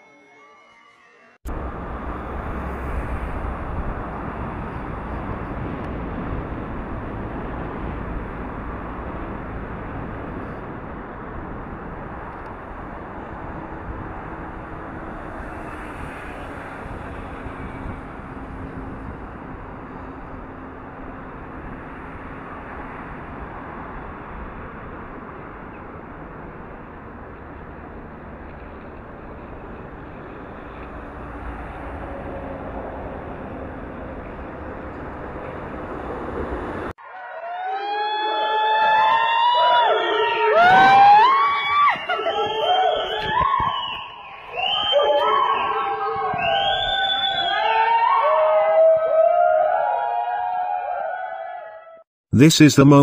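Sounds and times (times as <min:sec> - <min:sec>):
outdoor rushing noise: 0:01.5 - 0:37.0.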